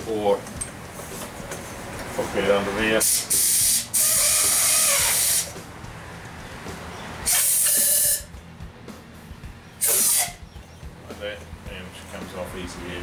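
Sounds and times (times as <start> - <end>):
compressed air hissing: 3.0 - 5.6, 7.2 - 8.3, 9.8 - 10.4.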